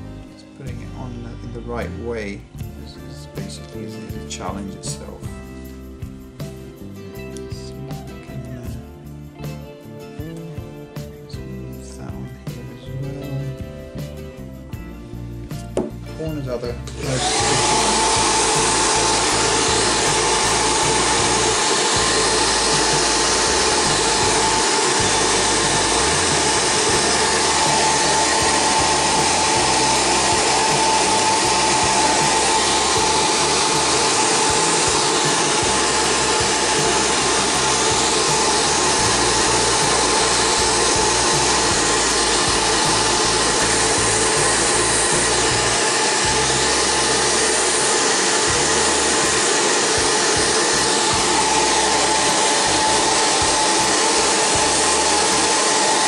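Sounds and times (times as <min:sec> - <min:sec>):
hair dryer running: 0:15.5 - 0:56.0.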